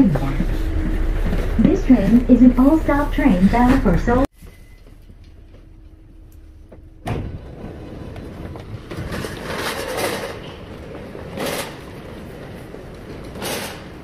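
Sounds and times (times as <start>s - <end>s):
train rushing and rumbling: 0.0s - 14.0s.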